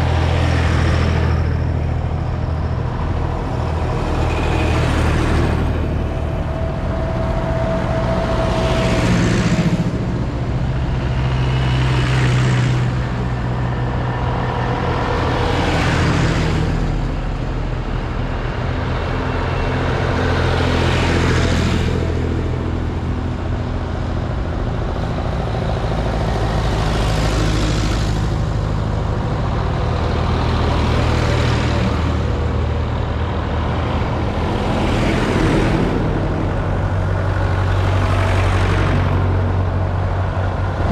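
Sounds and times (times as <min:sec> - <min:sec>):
tractors driving past: 0:00.0 - 0:40.9.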